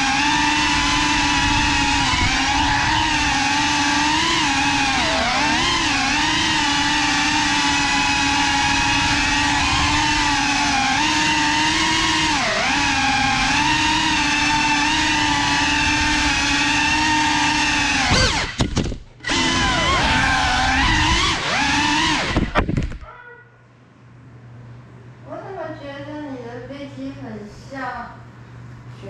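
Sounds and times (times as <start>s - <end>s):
drone motors whining: 0.0s - 23.0s.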